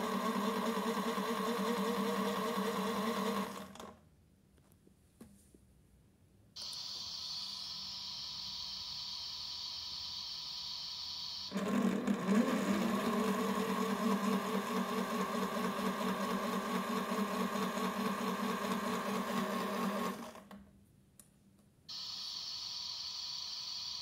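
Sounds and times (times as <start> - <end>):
toy washing machine motor whining: 0.0 - 3.9, 6.6 - 20.6
steady hiss: 6.6 - 11.5, 21.9 - 24.0.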